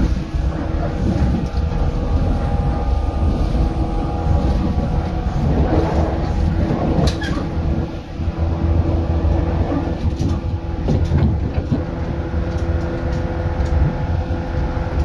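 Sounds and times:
low motor hum: 0.0s - 15.0s
train wheels rumbling on rail: 0.0s - 15.0s
short high squeak: 2.4s - 8.2s.

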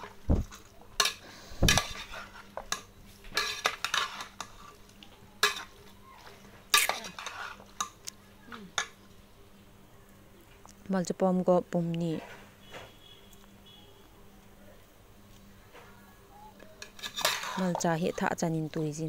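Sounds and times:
metal spoon stirring in pot: 0.0s - 8.0s, 16.8s - 18.2s
metal scrapes and clanks: 1.7s - 2.5s, 3.4s - 4.8s, 6.7s - 7.7s, 16.8s - 17.8s.

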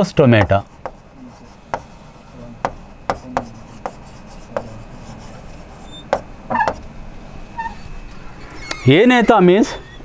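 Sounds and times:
pen tapping on screen: 0.4s - 1.0s, 2.6s - 4.8s
pen rubbing on whiteboard screen: 0.4s - 6.8s.

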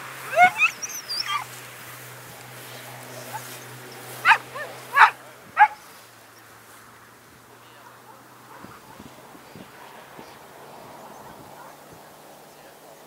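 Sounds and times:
dog yelping and whining: 0.3s - 1.5s, 4.2s - 5.8s.

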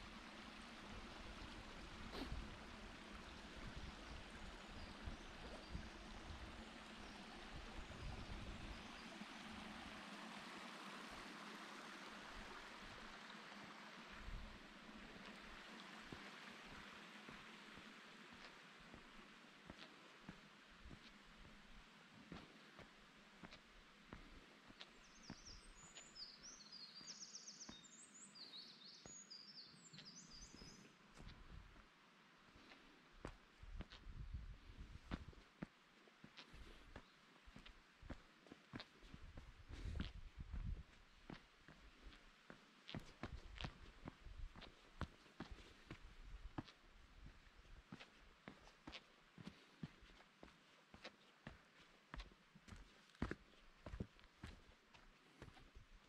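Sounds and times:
stream rushing over rock: 0.0s - 22.7s
running water hiss: 0.0s - 32.8s
footsteps on rock and leaves: 36.2s - 55.8s
soft low thumps: 39.1s - 41.9s.

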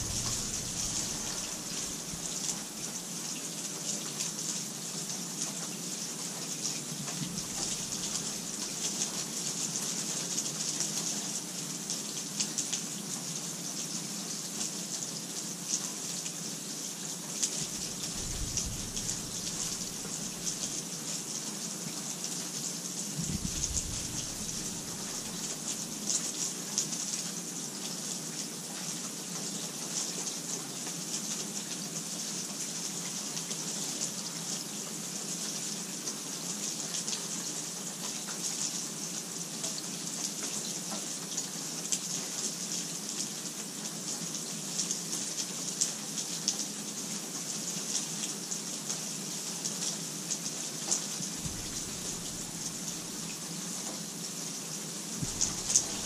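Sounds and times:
low rumble: 0.0s - 2.8s, 17.7s - 20.8s, 23.2s - 25.6s, 51.4s - 53.4s, 55.2s - 56.0s
raindrops ticking: 0.0s - 2.8s, 7.2s - 8.5s, 17.6s - 20.8s, 23.2s - 25.7s, 51.4s - 53.4s, 55.2s - 56.0s
steady rain hiss: 0.0s - 56.0s.

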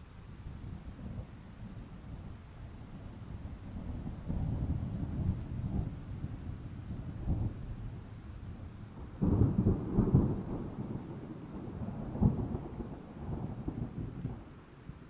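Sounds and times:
thunder rumbling: 8.9s - 14.6s.

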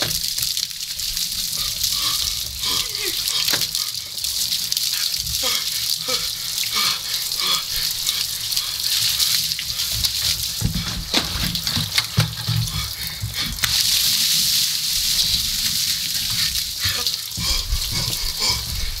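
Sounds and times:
ice water pouring and splashing: 0.0s - 19.0s
man yelping and gasping: 2.0s - 3.9s, 5.4s - 8.8s, 16.8s - 19.0s.

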